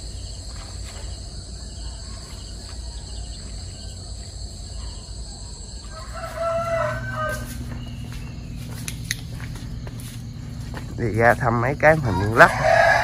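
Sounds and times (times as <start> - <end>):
insects calling: 0.0 - 13.0
rooster crowing: 5.6 - 8.1, 12.0 - 13.0.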